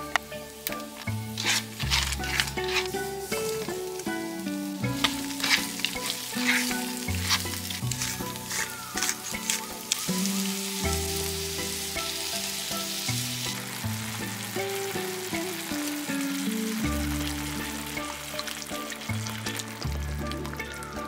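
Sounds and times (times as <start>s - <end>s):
food sizzling in a frying pan: 0.0s - 21.0s
music with slow bass line: 0.0s - 21.0s.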